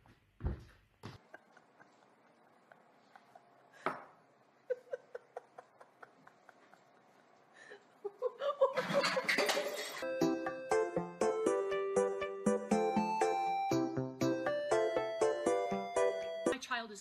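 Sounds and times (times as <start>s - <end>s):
person laughing: 1.2s - 3.8s, 4.6s - 9.4s.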